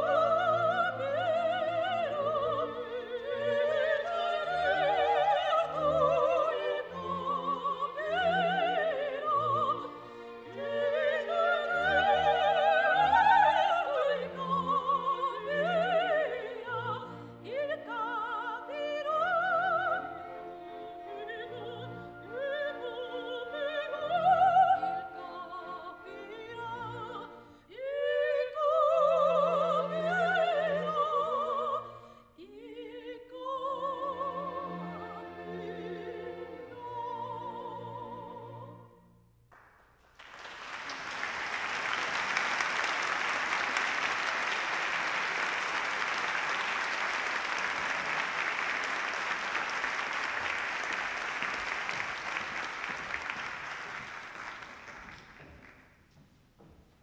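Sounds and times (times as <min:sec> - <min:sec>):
women singing operatic duet: 0:00.0 - 0:39.0
soft orchestral accompaniment: 0:00.0 - 0:39.3
audience applause: 0:40.0 - 0:55.8.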